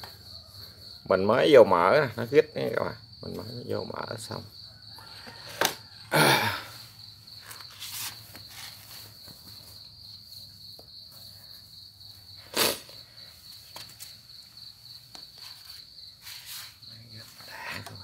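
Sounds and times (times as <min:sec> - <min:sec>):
insects chirring: 0:00.0 - 0:18.0.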